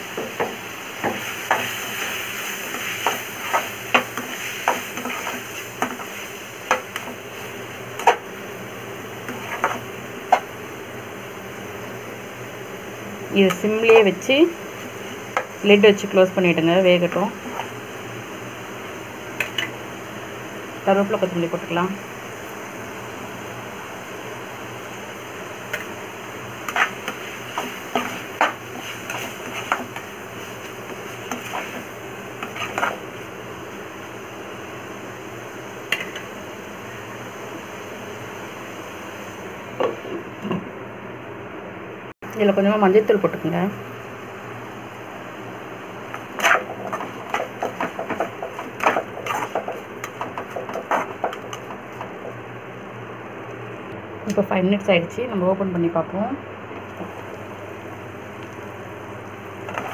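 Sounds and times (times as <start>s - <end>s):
spatula scraping metal pan: 26.7s - 30.0s, 31.0s - 33.0s, 46.4s - 51.7s.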